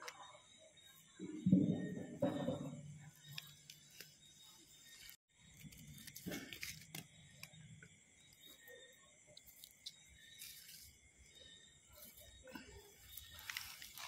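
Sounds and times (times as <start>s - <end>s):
dry grass rustling and crackling: 13.0s - 14.0s.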